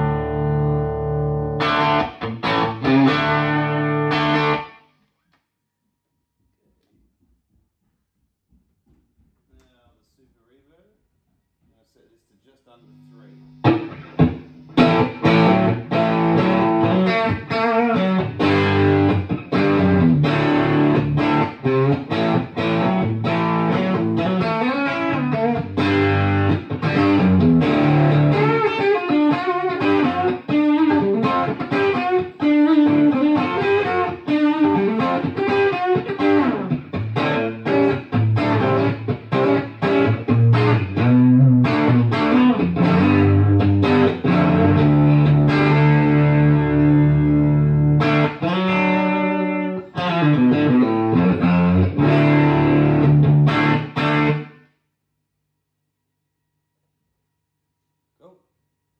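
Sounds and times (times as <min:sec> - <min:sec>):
overdriven electric guitar playing: 0:00.0 - 0:04.8, 0:13.0 - 0:54.5.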